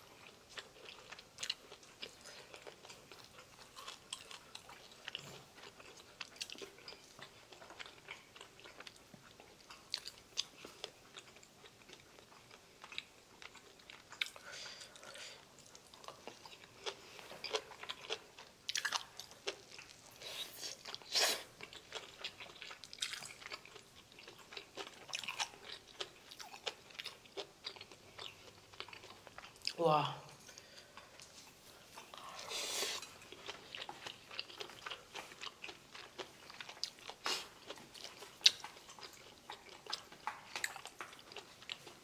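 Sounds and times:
chewing and crunching food: 0:00.0 - 0:42.0.

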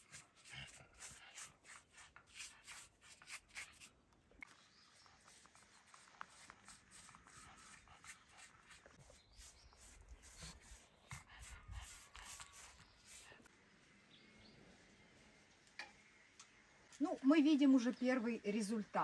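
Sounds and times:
paintbrush scrubbing on brick: 0:00.0 - 0:04.0, 0:04.6 - 0:13.5.

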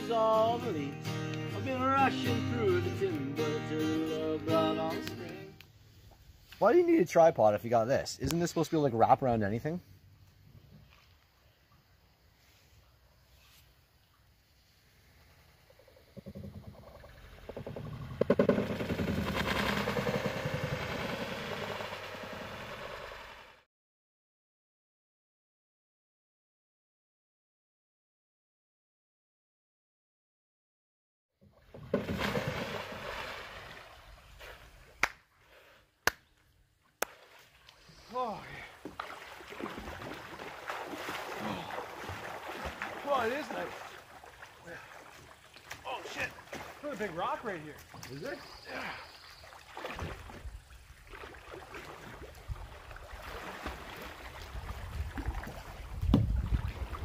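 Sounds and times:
water splash: 0:18.5 - 0:23.6, 0:31.7 - 0:35.1, 0:38.8 - 0:47.2, 0:49.4 - 0:57.0
wind buffeting microphone: 0:54.4 - 0:57.0.

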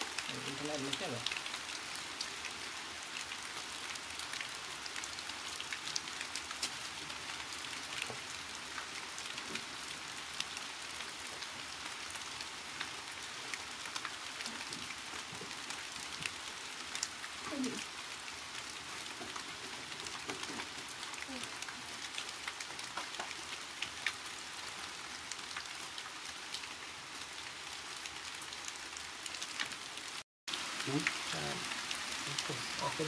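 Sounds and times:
hissing noise with crackling ticks: 0:00.0 - 0:24.3, 0:30.8 - 0:33.0
faint voice-like sound: 0:17.4 - 0:17.8.

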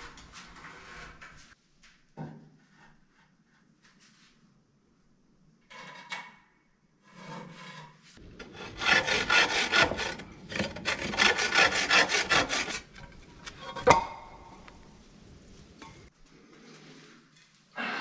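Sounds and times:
hand saw rasping through block: 0:08.4 - 0:13.0.

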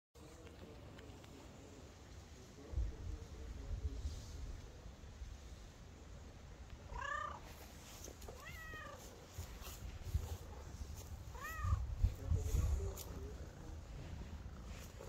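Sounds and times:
cat meowing: 0:06.9 - 0:07.4, 0:08.3 - 0:09.1, 0:11.3 - 0:11.9.

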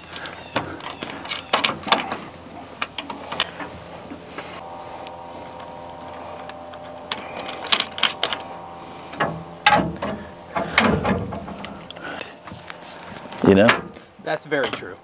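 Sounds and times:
metal hardware clicks and knocks: 0:00.1 - 0:03.7, 0:14.6 - 0:15.0
cordless drill whine: 0:04.6 - 0:10.8.

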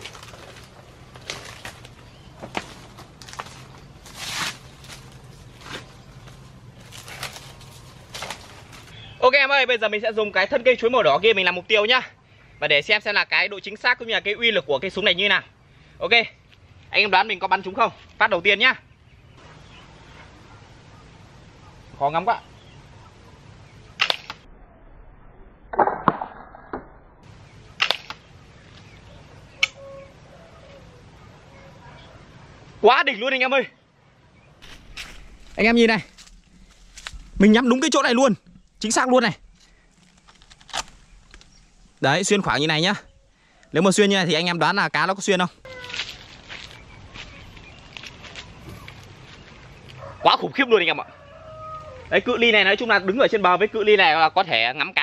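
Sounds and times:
rustling of grass and leaves: 0:00.0 - 0:09.3, 0:27.2 - 0:31.8, 0:34.6 - 0:50.2
speargun sharp snaps: 0:24.0 - 0:24.4
sharp click: 0:24.0 - 0:24.5.

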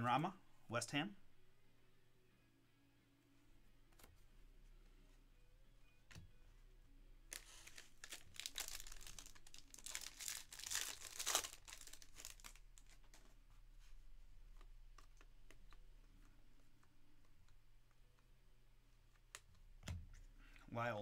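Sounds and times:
foil wrapper crinkling and tearing: 0:07.3 - 0:13.0.

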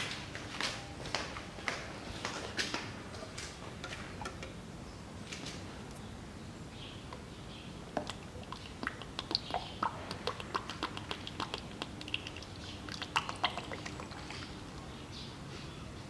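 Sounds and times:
fluid glugging into funnel: 0:08.0 - 0:14.6.

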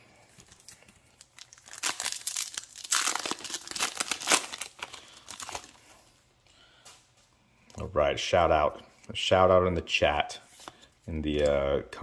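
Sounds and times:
foil wrapper tearing and crinkling: 0:00.5 - 0:05.8.

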